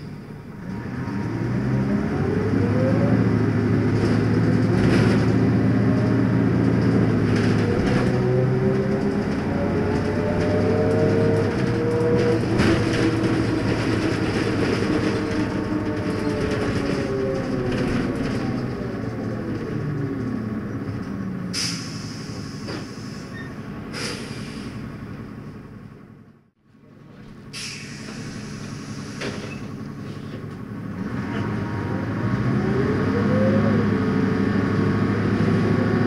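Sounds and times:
bus engine pulling away: 0.0 - 36.0.

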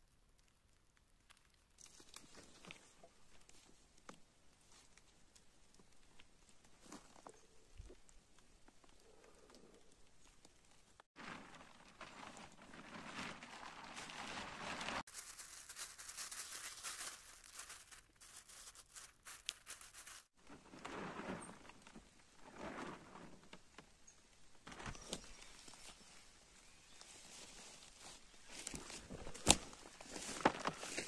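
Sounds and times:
plastic tarp rustling: 10.6 - 24.0, 24.6 - 31.0.

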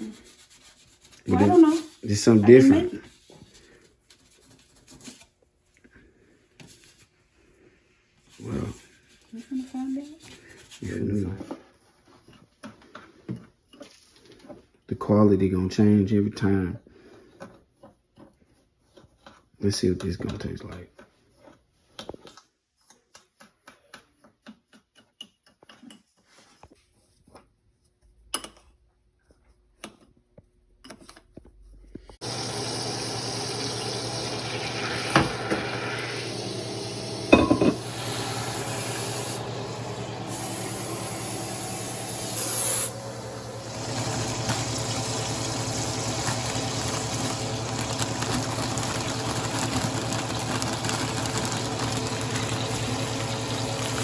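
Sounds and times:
butter sizzling in a saucepan: 32.2 - 54.0
spoon scraping in a bowl: 37.3 - 37.8.

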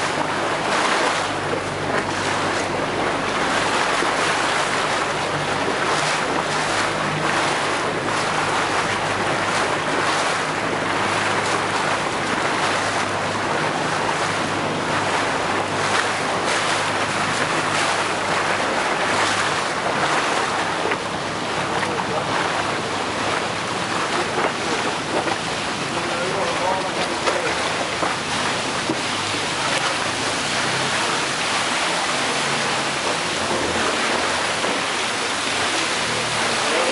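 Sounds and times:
boat engine humming: 0.0 - 36.9
water splashing against hull: 0.0 - 36.9.

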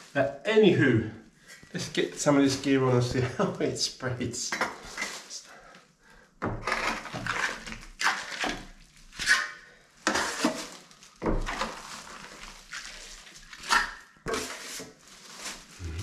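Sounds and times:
trowel scraping wet plaster: 6.6 - 10.8, 12.6 - 15.0.

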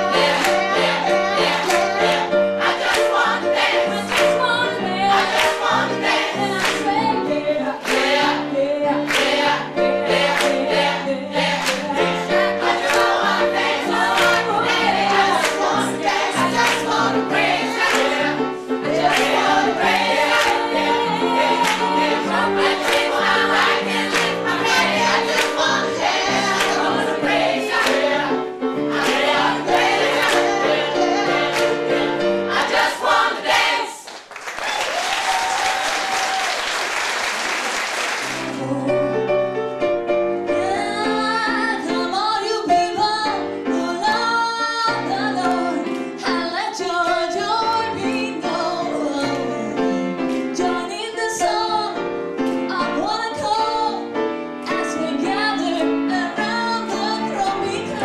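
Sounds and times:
choir singing with instruments: 0.0 - 34.1, 54.6 - 58.0
applause: 34.0 - 38.6.

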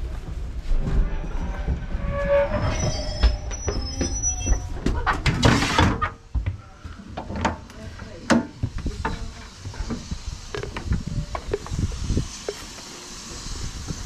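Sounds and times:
train running gear rumble and knocks: 0.0 - 14.0
wheels and brakes squealing: 1.0 - 4.9
loud steam hiss: 8.0 - 14.0.

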